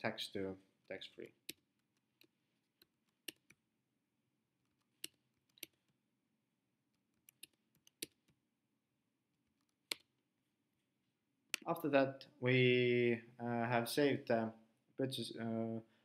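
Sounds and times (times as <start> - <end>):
computer mouse clicking: 7.1 - 8.4.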